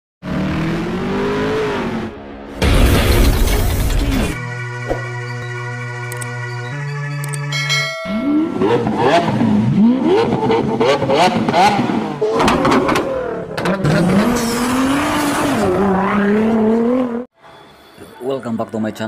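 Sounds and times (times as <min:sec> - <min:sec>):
sports car engine revving: 0:08.3 - 0:17.2.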